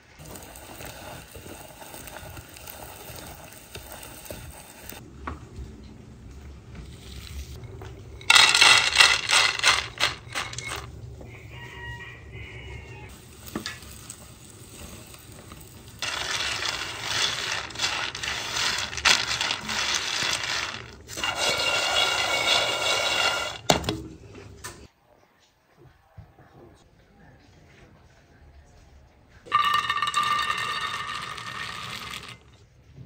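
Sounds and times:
metal utensils clinking on pots: 8.1 - 10.9.

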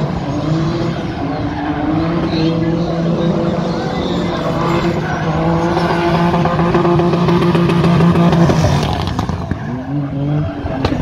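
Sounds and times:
car engine at high revs: 0.0 - 11.0.

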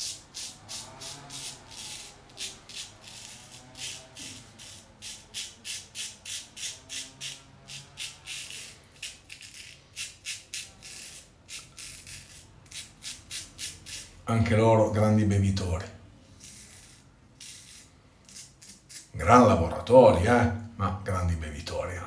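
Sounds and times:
razor scraping stubble: 0.0 - 14.2, 16.3 - 19.6.

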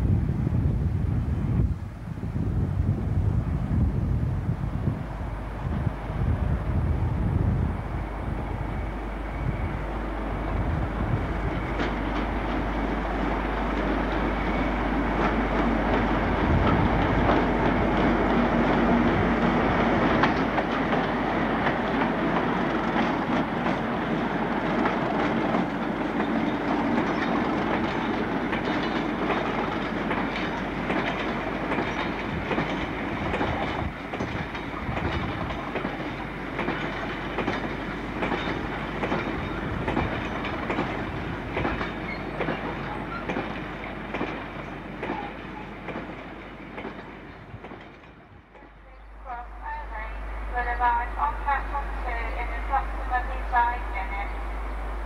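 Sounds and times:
freight train rumbling past: 0.0 - 55.0
wheels ticking over rail joints: 11.1 - 48.8.

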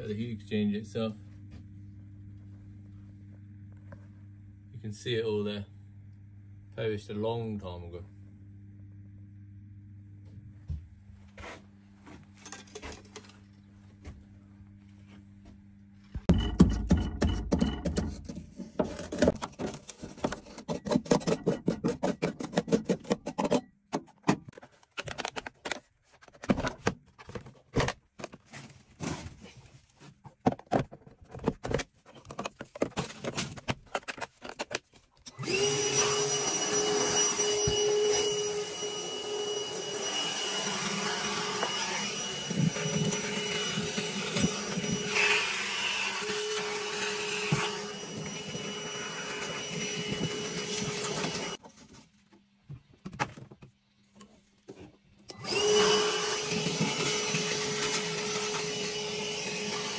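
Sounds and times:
vacuum cleaner running: 35.3 - 51.6, 55.3 - 59.9.

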